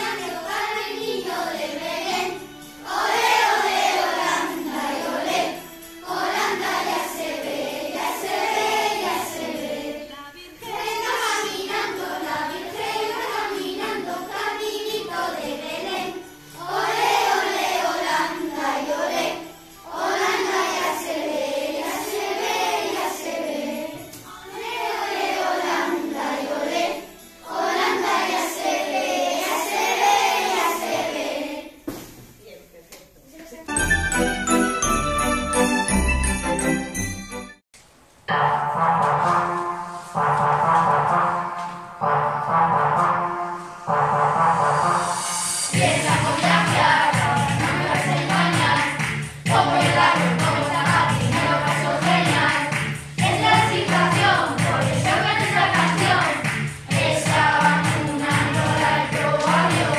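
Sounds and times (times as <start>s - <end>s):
children singing in unison: 0.0s - 31.8s, 44.8s - 59.9s.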